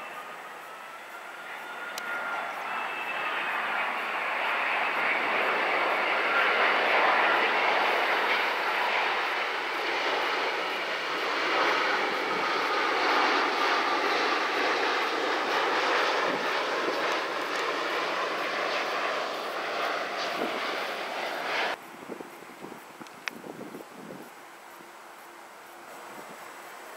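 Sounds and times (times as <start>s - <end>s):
jet airliner passing overhead: 0.0s - 26.9s.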